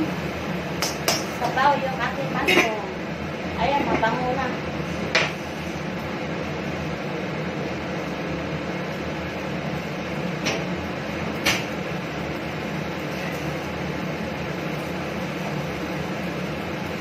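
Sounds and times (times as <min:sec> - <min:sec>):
whooshing fan hum: 0:00.0 - 0:17.0.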